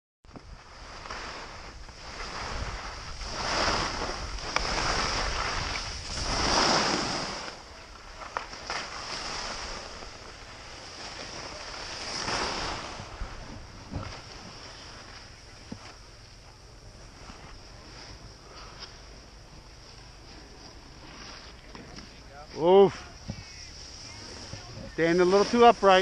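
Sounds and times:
wind rushing over microphone: 0:00.3 - 0:07.8, 0:09.2 - 0:18.5
skis scraping over packed snow: 0:00.3 - 0:26.0.

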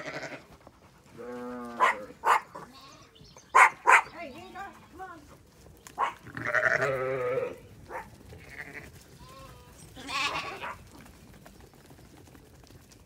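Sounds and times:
sheep bleating: 0:00.0 - 0:00.5, 0:01.2 - 0:03.2, 0:06.0 - 0:07.7, 0:08.4 - 0:10.8.

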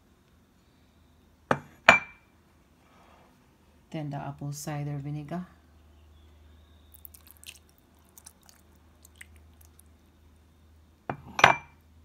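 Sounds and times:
low steady hum: 0:00.0 - 0:12.0
liquid poured over meat: 0:06.9 - 0:09.9.

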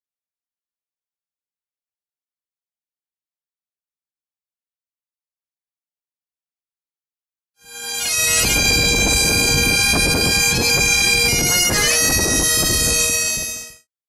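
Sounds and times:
bagpipes playing a tune: 0:07.6 - 0:13.9.

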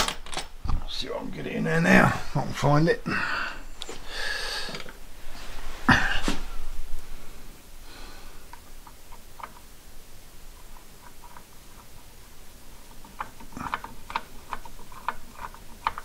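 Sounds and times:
small metallic clicks: 0:12.9 - 0:16.0.

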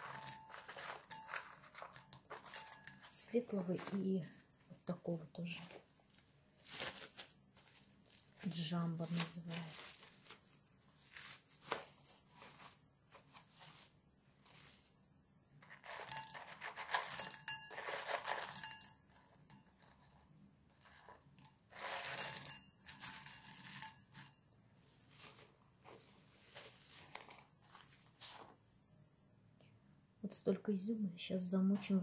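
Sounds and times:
plastic film crinkling: 0:00.0 - 0:04.5, 0:05.4 - 0:14.9, 0:24.9 - 0:28.5.

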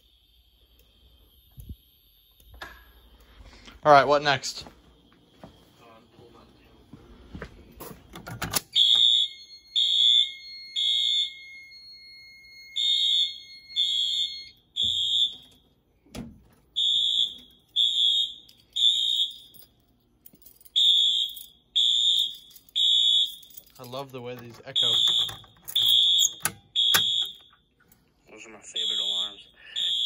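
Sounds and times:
thin steady high tone: 0:00.0 - 0:06.8, 0:09.2 - 0:14.7
alarm horn blasts: 0:12.7 - 0:15.5, 0:24.7 - 0:27.5, 0:28.7 - 0:30.0.

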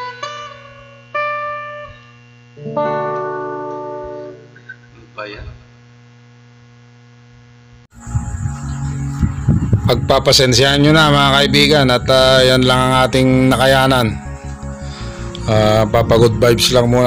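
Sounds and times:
electrical hum: 0:00.0 - 0:17.0
acoustic guitar chords: 0:02.6 - 0:04.8, 0:07.9 - 0:17.0.

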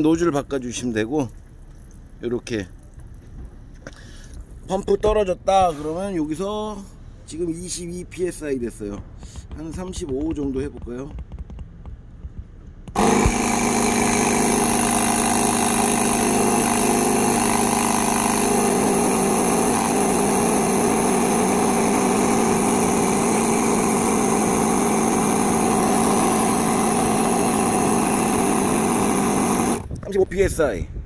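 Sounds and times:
air compressor running: 0:12.9 - 0:30.0.

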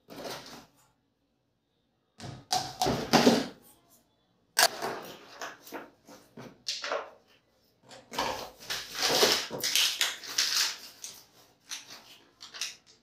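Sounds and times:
plastic parts clattering: 0:04.6 - 0:13.0.

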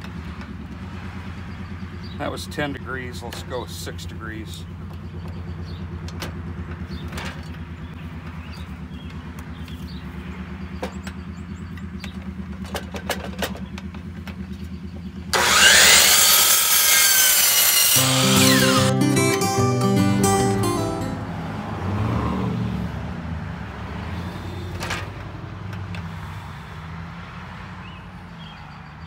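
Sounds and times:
miter saw cutting wood: 0:15.4 - 0:21.0
acoustic guitar music: 0:18.0 - 0:21.6.

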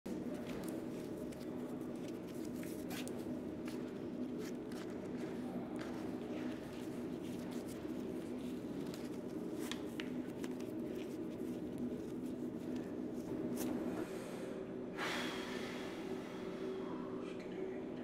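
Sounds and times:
steady hum: 0:00.1 - 0:18.0
shoelace rustles: 0:00.3 - 0:05.4, 0:06.0 - 0:13.8.

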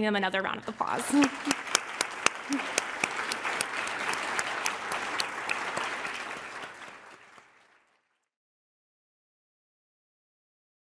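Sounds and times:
audience applauding: 0:00.7 - 0:08.2.

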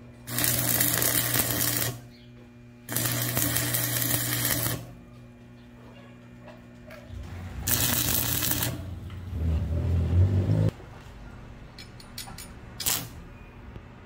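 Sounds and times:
welding arc crackling: 0:00.2 - 0:02.1, 0:02.9 - 0:05.0, 0:07.2 - 0:09.2, 0:12.8 - 0:13.2.

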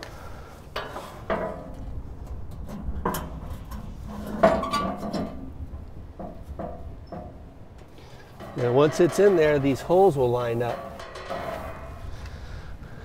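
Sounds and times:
metal scraping on metal: 0:00.8 - 0:12.8
ringing metal clanks: 0:06.2 - 0:12.3.

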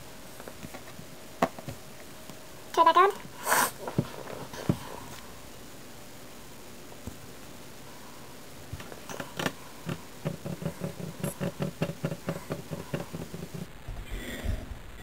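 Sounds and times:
fingers tapping on a desk: 0:08.8 - 0:13.7.

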